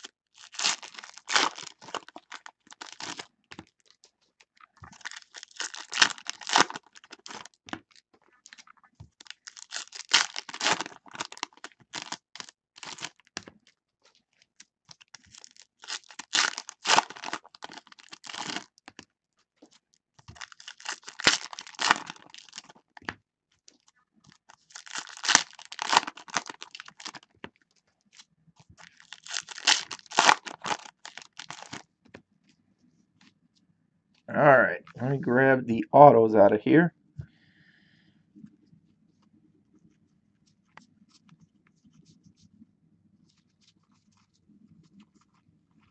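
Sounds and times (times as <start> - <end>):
foil wrappers tearing and crinkling: 0.0 - 3.3, 4.9 - 8.6, 9.2 - 13.3, 15.0 - 18.8, 20.3 - 22.8, 24.3 - 27.3, 28.2 - 31.8.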